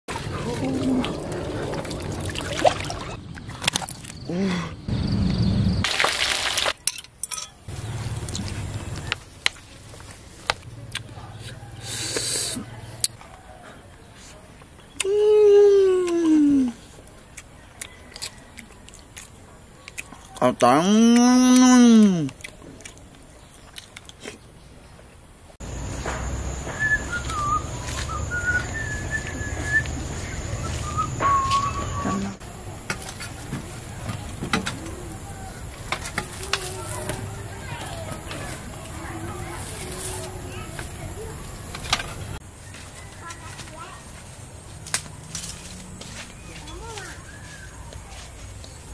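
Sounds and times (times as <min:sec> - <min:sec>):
fish deep-frying in oil: 0:05.8 - 0:06.8
low hum: 0:25.6 - 0:32.8
whistled bird-like calls: 0:26.4 - 0:32.4.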